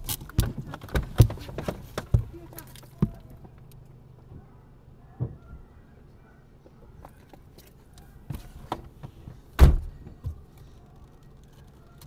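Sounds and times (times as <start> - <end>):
thuds and knocks on car body: 0.3 - 2.4, 8.3 - 10.4.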